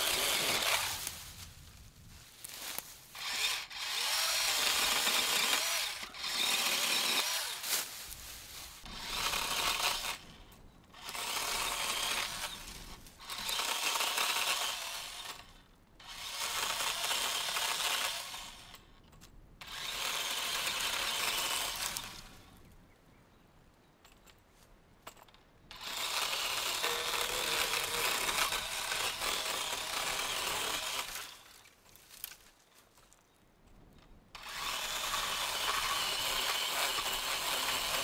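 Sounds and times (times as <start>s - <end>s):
electric chainsaw cutting a limb: 0.0s - 1.1s, 3.2s - 7.8s, 8.9s - 10.3s, 11.0s - 18.8s, 19.6s - 22.4s, 25.7s - 31.6s, 34.4s - 38.0s.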